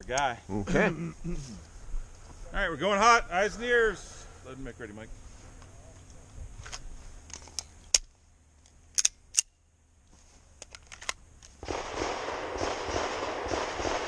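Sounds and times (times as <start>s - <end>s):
handgun metallic clicks: 6.7s - 9.6s, 10.6s - 11.5s.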